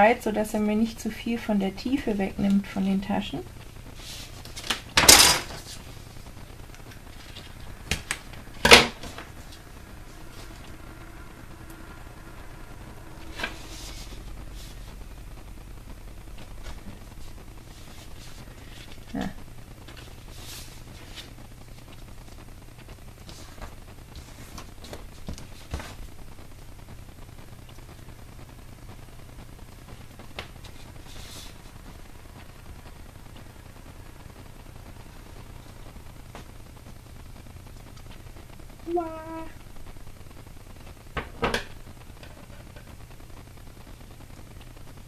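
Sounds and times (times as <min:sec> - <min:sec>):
low steady hum: 0:00.0 - 0:45.0
paper rustling: 0:04.0 - 0:04.9, 0:19.8 - 0:22.0, 0:30.4 - 0:31.6.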